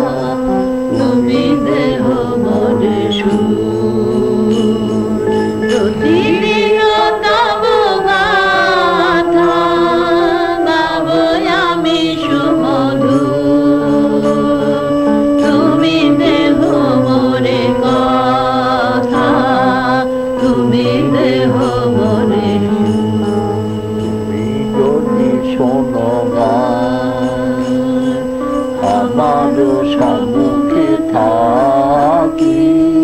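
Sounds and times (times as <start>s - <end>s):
devotional singing with vibrato: 0.0s - 33.0s
steady sustained drone: 0.0s - 33.0s.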